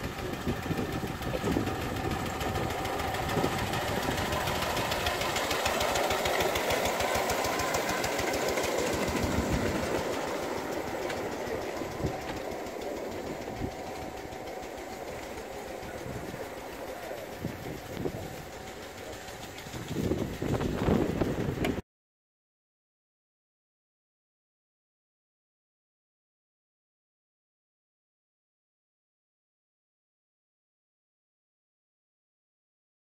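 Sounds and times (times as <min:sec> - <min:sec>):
small locomotive engine running: 0:00.0 - 0:21.8.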